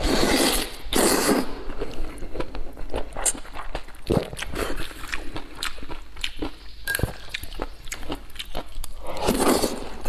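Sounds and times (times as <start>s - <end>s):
slurping noodles: 0.0s - 2.2s, 9.0s - 10.0s
wet chewing: 0.3s - 10.0s.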